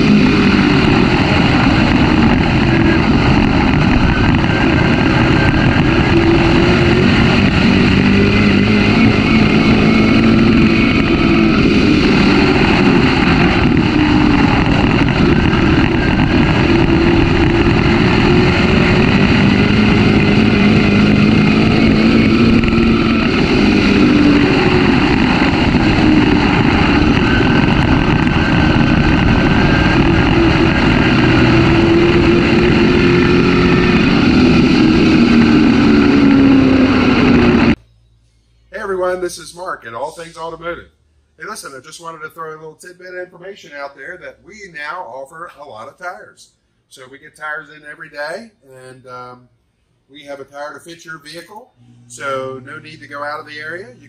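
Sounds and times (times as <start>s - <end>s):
race car engine revving: 0.0s - 37.8s
wind and road noise: 0.0s - 37.8s.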